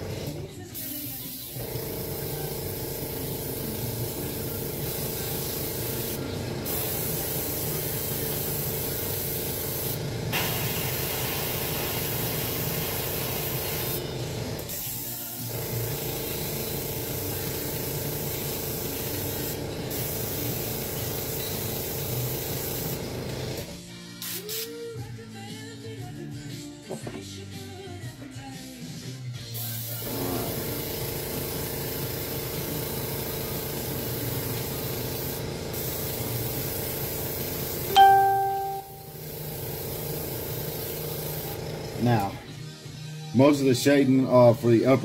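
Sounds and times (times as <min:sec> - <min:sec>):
airbrush hissing: 0:33.8 - 0:37.8.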